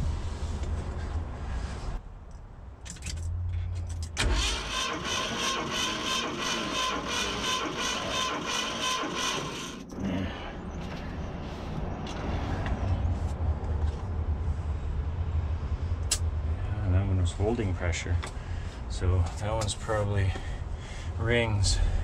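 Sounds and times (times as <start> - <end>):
engine turning over: 4.2 - 9.9
starter motor whining: 4.2 - 9.9.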